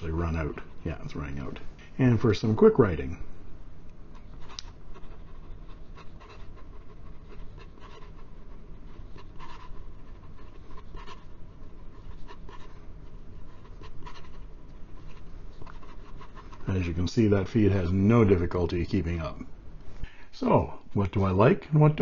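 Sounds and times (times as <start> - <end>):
pen nib scratching on paper: 4.2 - 16.8.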